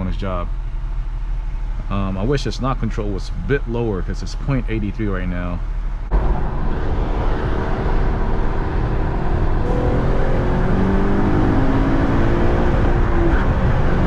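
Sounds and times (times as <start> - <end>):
road and wind noise: 0.0 - 14.0
car engine accelerating: 5.6 - 14.0.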